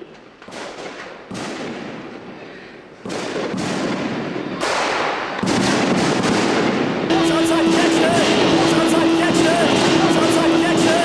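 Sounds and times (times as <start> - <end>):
crowded club din: 7.1 - 11.0.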